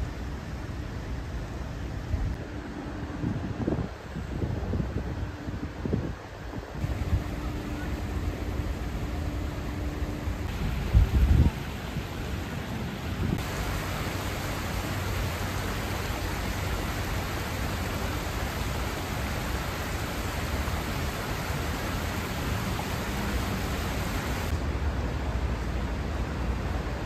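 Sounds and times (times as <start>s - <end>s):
stream rushing over stones: 10.4s - 24.5s.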